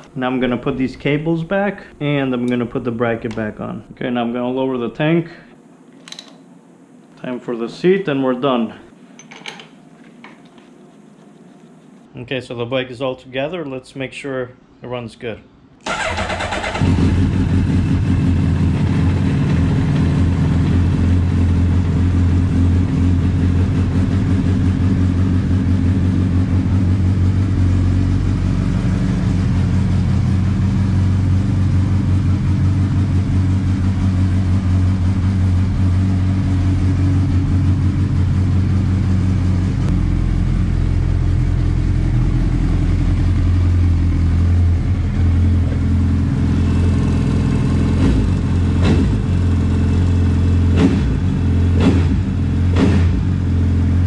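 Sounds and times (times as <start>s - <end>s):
motorcycle engine idling: 15.9s - 52.6s.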